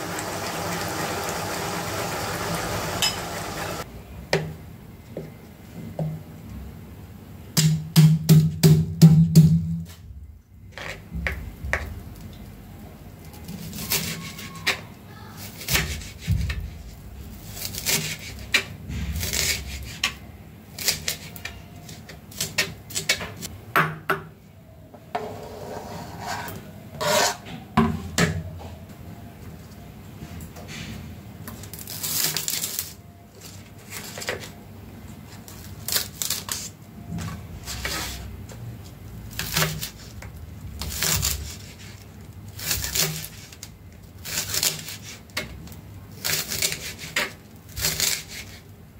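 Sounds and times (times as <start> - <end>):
knife blade scraping: 25.4 - 27.4.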